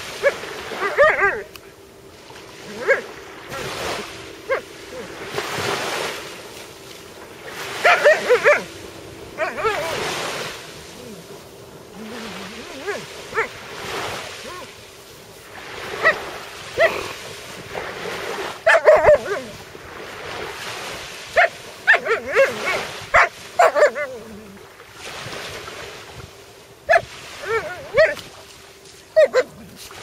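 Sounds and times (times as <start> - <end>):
dog whining and yipping: 0.8 - 1.5, 2.7 - 3.0, 7.8 - 8.7, 9.4 - 10.0, 12.7 - 13.5, 18.6 - 19.6, 21.4 - 24.4, 26.9 - 28.2, 29.2 - 29.7.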